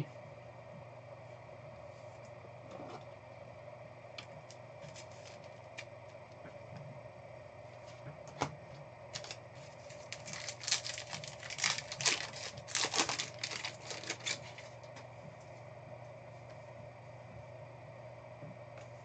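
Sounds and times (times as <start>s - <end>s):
wrapper crinkling and tearing: 4.9s - 5.8s, 9.1s - 14.9s.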